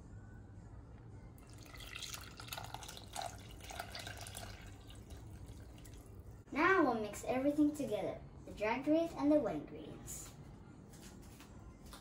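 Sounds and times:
liquid pouring and dripping: 1.4 - 6.4.

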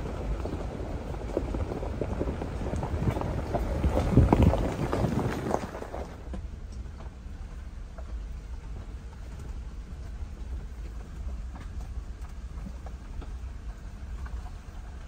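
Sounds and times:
low road rumble: 0.0 - 15.0
tyres crunching on gravel: 0.0 - 15.0.

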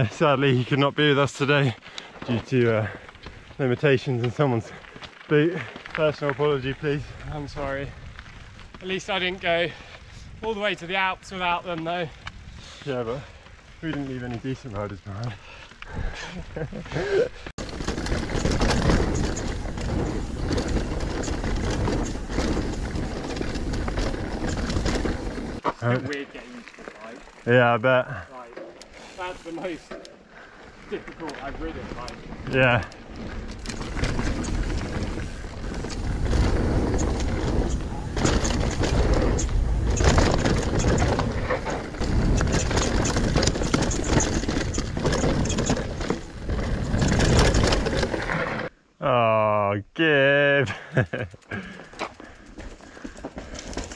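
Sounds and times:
bike tyres rumbling on dirt: 0.0 - 48.7, 51.5 - 53.9
bike clicks and rattles: 0.5 - 10.1, 11.2 - 48.7, 51.0 - 53.9.

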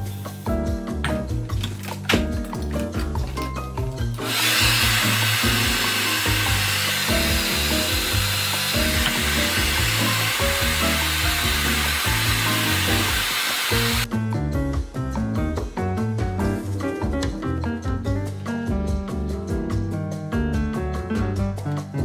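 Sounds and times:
background music: 0.0 - 22.0
hair dryer running: 4.2 - 14.1.

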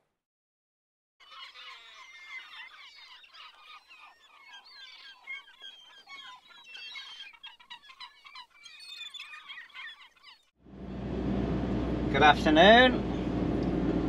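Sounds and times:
flock of birds chirping: 1.2 - 10.6.

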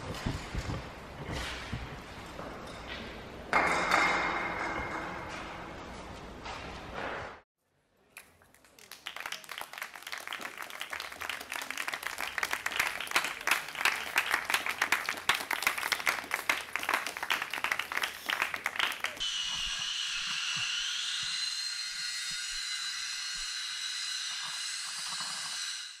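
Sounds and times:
audience applause: 8.5 - 19.2.

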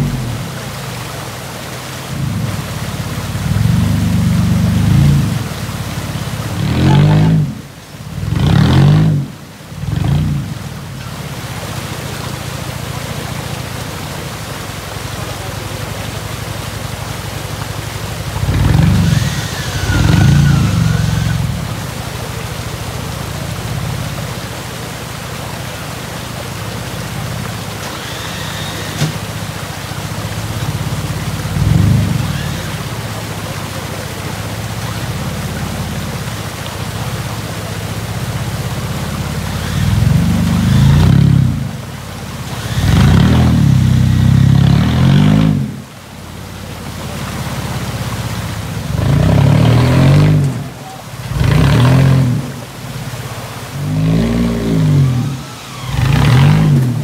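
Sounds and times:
off-road vehicle engine revving: 0.0 - 0.5, 2.1 - 11.2, 17.5 - 24.6, 26.4 - 33.8, 37.4 - 45.9, 48.5 - 57.0
steady hiss: 0.0 - 57.0.

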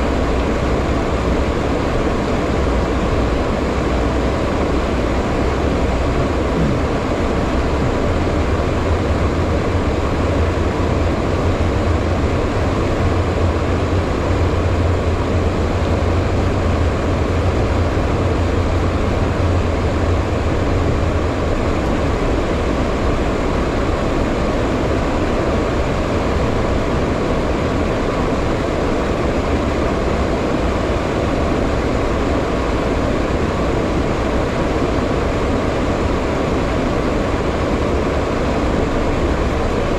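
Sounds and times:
jet engines humming: 0.0 - 39.9
rushing air: 0.0 - 39.9
deep rumble: 4.8 - 22.7.

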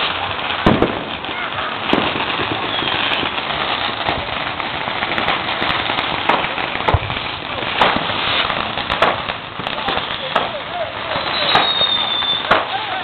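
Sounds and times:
firecrackers crackling and popping: 0.0 - 13.0
loud firework bang: 0.6 - 4.3, 6.1 - 10.6, 11.3 - 13.0.

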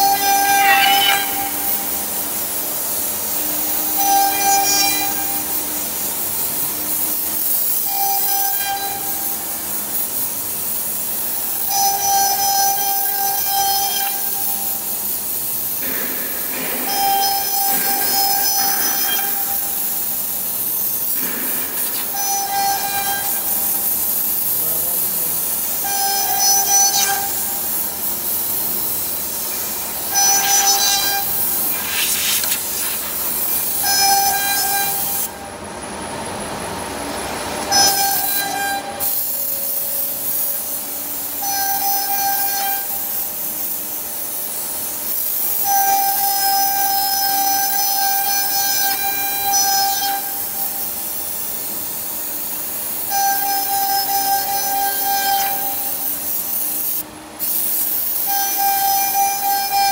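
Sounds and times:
high-pitched whine: 0.0 - 9.2, 21.2 - 35.5.

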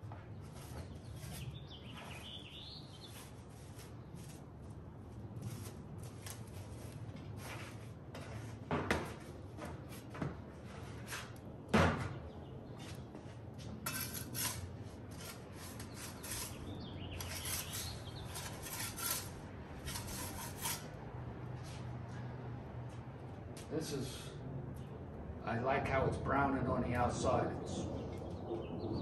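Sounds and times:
metal peel scraping and rattling: 13.8 - 21.0.

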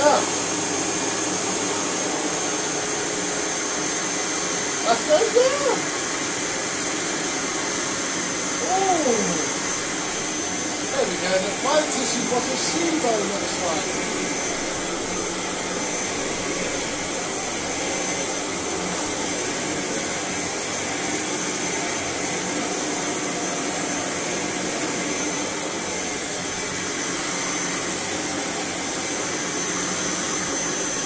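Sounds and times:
vacuum cleaner running with whine: 0.0 - 31.0.

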